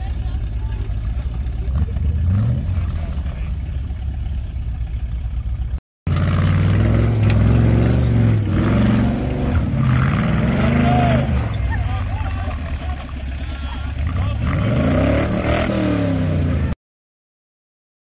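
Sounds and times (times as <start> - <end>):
engine revving hard under load: 1.6 - 3.6, 6.1 - 16.8.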